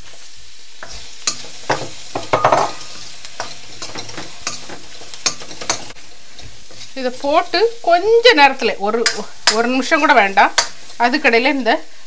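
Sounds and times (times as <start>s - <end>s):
onions sizzling in oil: 0.0s - 12.0s
metal spoon scraping pan: 0.8s - 7.0s, 9.0s - 10.8s.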